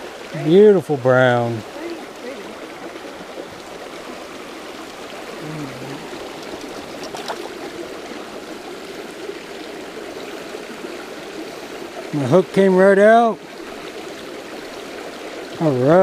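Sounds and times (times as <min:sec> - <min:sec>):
creek babbling over rocks: 0:00.0 - 0:16.0
low hum of a voice: 0:05.4 - 0:06.1.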